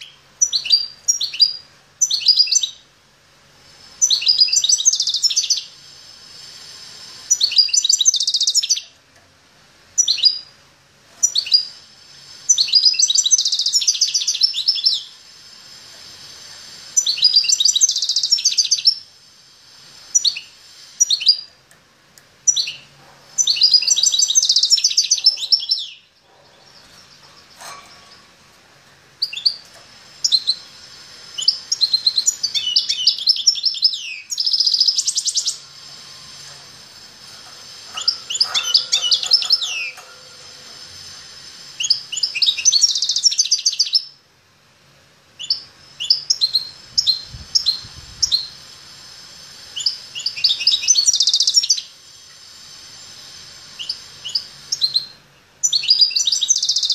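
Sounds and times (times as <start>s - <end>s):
songbird singing: 0.0s - 2.9s, 4.0s - 5.8s, 7.3s - 9.0s, 12.5s - 15.5s, 22.2s - 36.6s, 37.3s - 44.2s, 49.8s - 56.9s.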